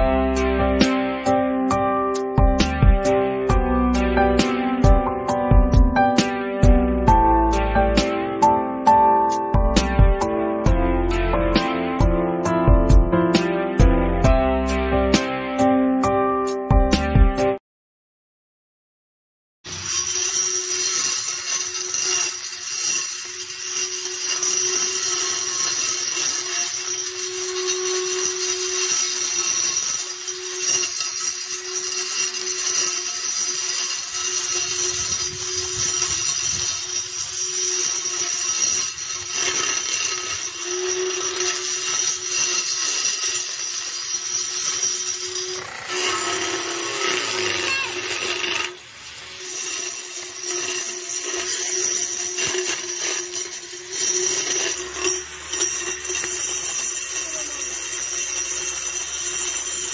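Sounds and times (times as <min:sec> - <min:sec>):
grass trimmer motor whining: 0:19.7 - 0:59.9
cutter chopping weeds and grass: 0:20.8 - 0:59.9.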